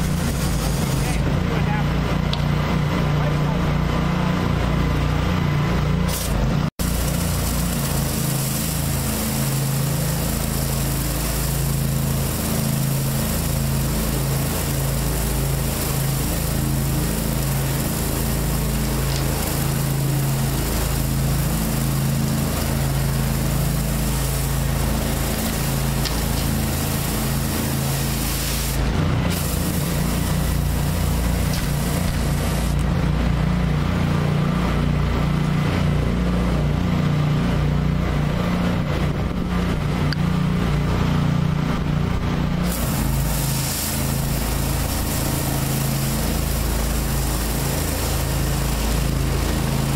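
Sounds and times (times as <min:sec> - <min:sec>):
water hissing on concrete: 0:00.0 - 0:01.2, 0:06.1 - 0:33.0, 0:42.4 - 0:49.9
pressure washer engine running: 0:00.0 - 0:49.9.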